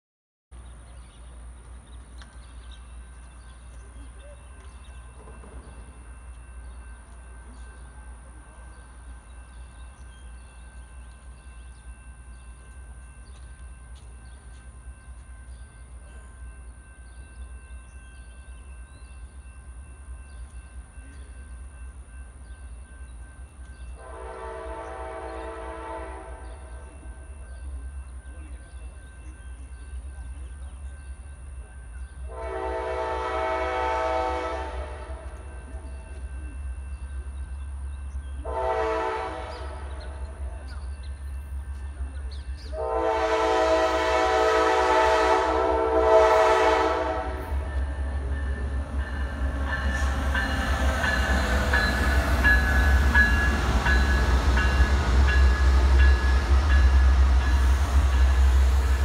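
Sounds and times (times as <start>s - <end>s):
locomotive horn blast: 24.0s - 26.8s, 32.3s - 35.4s, 38.4s - 40.2s, 42.7s - 48.1s.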